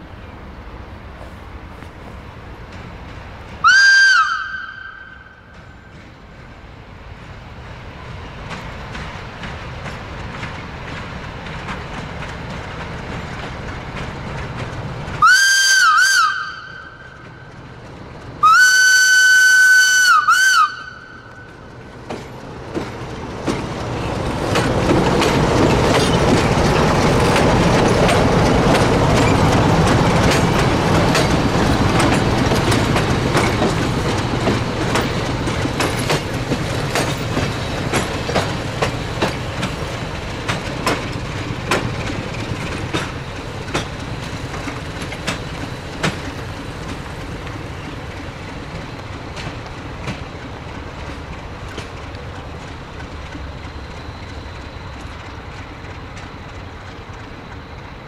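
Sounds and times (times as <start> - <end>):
locomotive whistle blasts: 3.6 - 5.4, 15.2 - 17.1, 18.4 - 21.5
wheels clattering over rail joints: 5.4 - 15.2, 21.1 - 58.0.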